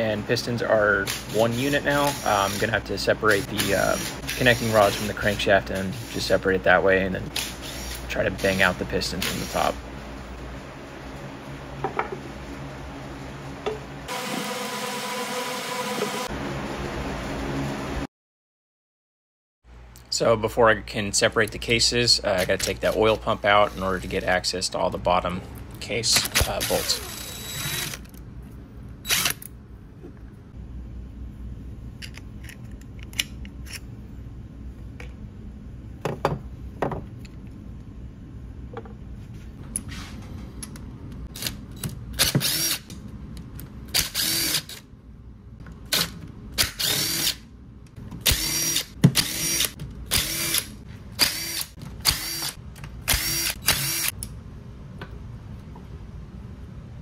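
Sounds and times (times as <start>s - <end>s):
cordless drill motor bursts: 26.4s - 28.0s, 29.1s - 29.4s, 42.2s - 42.9s, 44.0s - 44.8s, 46.6s - 47.4s, 48.2s - 54.1s.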